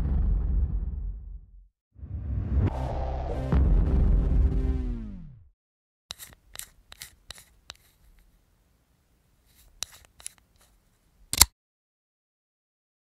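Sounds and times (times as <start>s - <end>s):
short sharp clicks: 11.3s - 11.6s.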